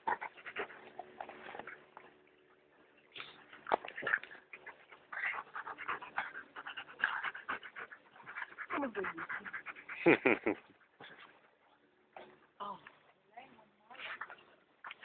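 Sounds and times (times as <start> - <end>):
dog panting rapidly: 4.0 - 10.2.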